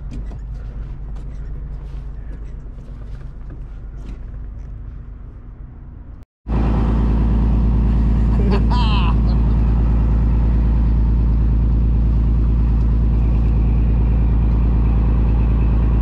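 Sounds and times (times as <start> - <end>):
low engine hum: 0.0 - 16.0
boat engine running loud: 6.5 - 16.0.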